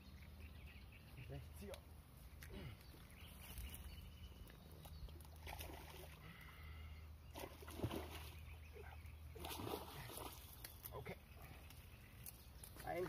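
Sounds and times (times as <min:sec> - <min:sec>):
fish splashing in water: 0:05.3 - 0:06.2.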